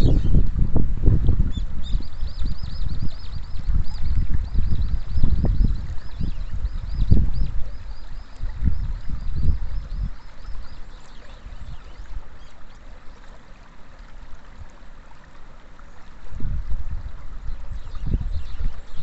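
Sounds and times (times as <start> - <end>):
wind buffeting microphone: 0.0 - 12.7, 16.2 - 19.0
water lapping over rocks: 1.0 - 19.0.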